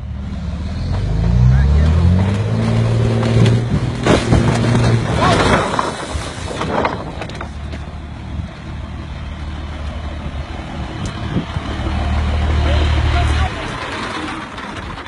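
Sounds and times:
low rumble: 0:00.0 - 0:15.0
truck engine running: 0:00.0 - 0:15.0
crash and clatter of planks: 0:02.1 - 0:07.9.

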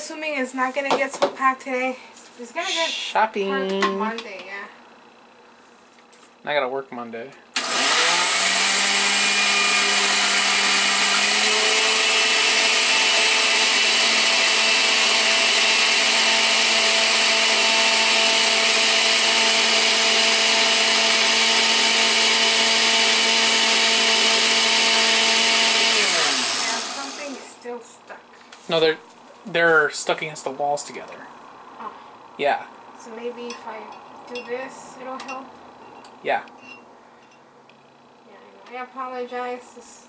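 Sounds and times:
blender motor running: 0:07.6 - 0:27.6.

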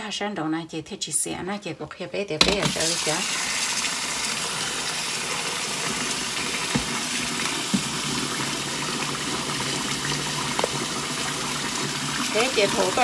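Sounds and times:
tap water running into sink: 0:02.4 - 0:13.0.

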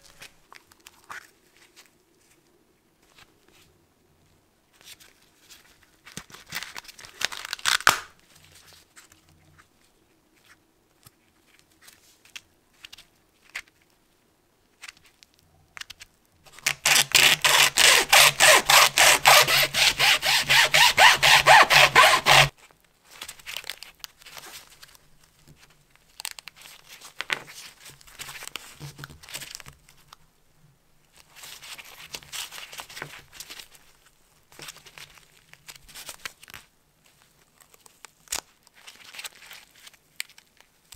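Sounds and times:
paper crinkling and tearing: 0:15.8 - 0:25.0
hacksaw cutting: 0:16.9 - 0:22.5.

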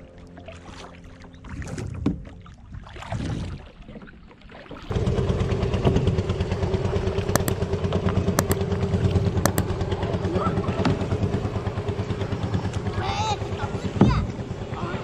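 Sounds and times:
paddle splashing water: 0:00.2 - 0:04.9
small engine running: 0:04.9 - 0:07.5.

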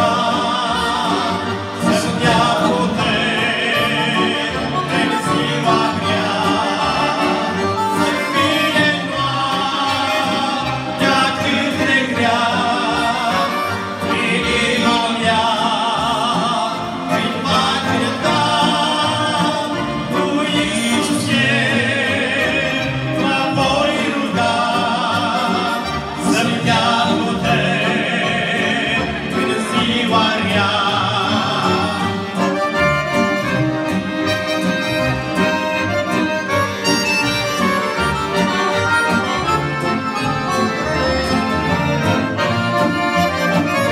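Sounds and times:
men singing a hymn: 0:00.0 - 0:34.1
accordions playing: 0:00.0 - 0:43.9.

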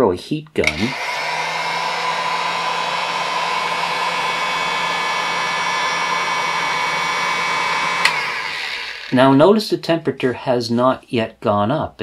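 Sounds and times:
heat gun blowing: 0:00.6 - 0:09.4.

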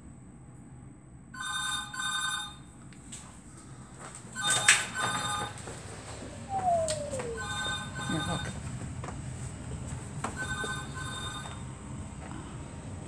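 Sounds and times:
telephone ringing: 0:01.4 - 0:02.7, 0:04.4 - 0:05.8, 0:07.0 - 0:08.6, 0:10.4 - 0:11.7.

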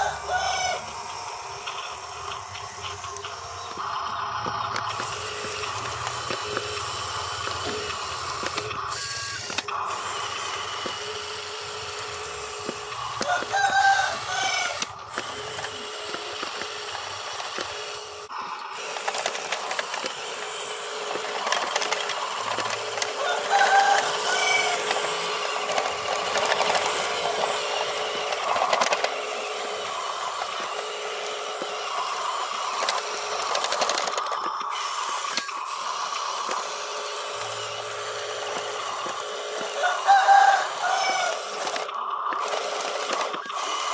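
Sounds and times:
rooster-like calls: 0:00.0 - 0:01.4, 0:12.1 - 0:15.5, 0:22.4 - 0:29.5, 0:39.6 - 0:41.9
toy truck motors whirring: 0:00.0 - 0:43.9.

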